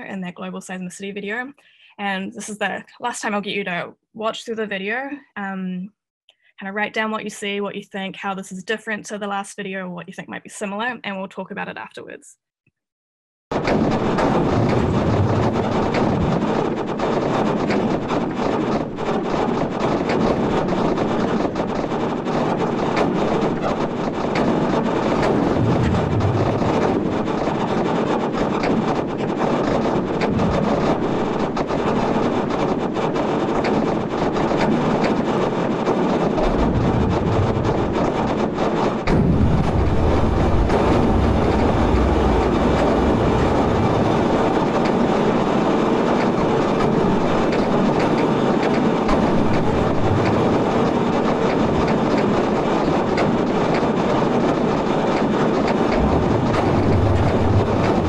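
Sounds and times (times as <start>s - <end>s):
dense continuous sonified noise: 0.0s - 5.9s, 13.5s - 58.0s.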